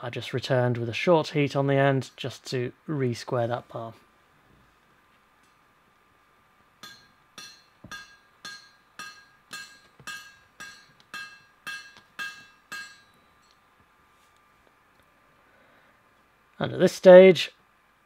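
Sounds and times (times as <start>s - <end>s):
ringing hammer blows on iron: 6.8s - 13.7s.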